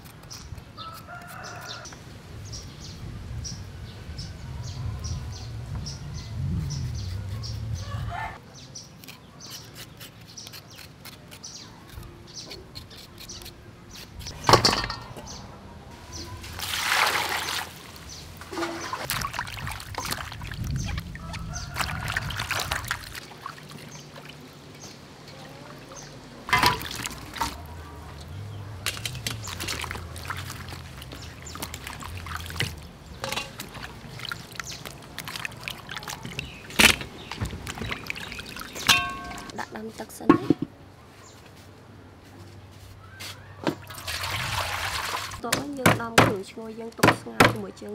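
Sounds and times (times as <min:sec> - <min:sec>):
water sloshing in a steel bowl: 0:16.2 - 0:39.6, 0:43.8 - 0:45.5.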